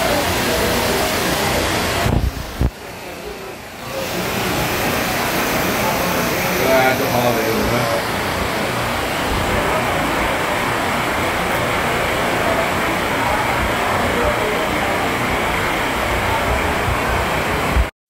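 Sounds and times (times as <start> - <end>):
floodwater rushing down street: 0.0 - 17.9
heavy rain: 0.0 - 17.9.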